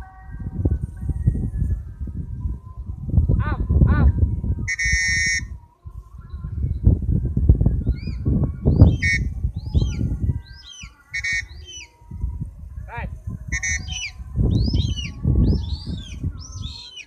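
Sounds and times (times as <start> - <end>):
small birds chirping: 4.6 - 17.0
buzzy bird calls: 4.7 - 5.5, 7.9 - 12.0, 13.5 - 17.0.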